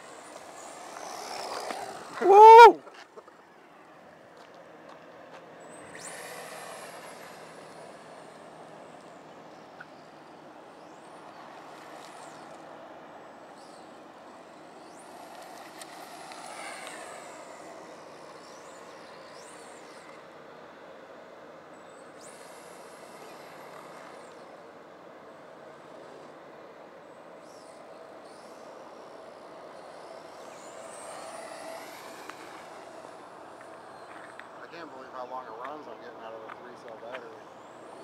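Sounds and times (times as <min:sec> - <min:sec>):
electric motor whining: 0:00.0 - 0:02.8, 0:28.2 - 0:34.5.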